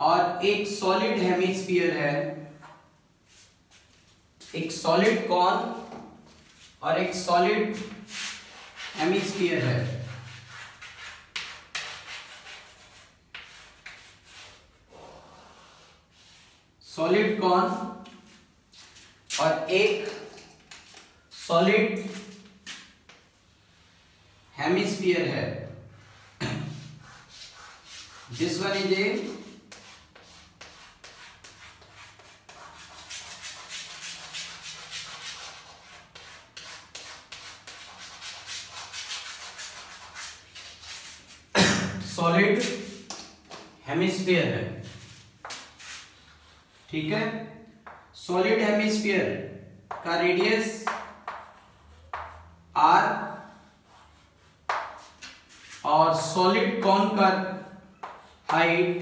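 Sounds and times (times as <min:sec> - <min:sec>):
chalk scratching on chalkboard: 0:02.6 - 0:16.7, 0:22.0 - 0:25.0, 0:26.0 - 0:41.6, 0:42.5 - 0:47.1, 0:47.8 - 0:48.1, 0:49.9 - 0:52.7, 0:53.3 - 0:56.4, 0:57.7 - 0:59.0.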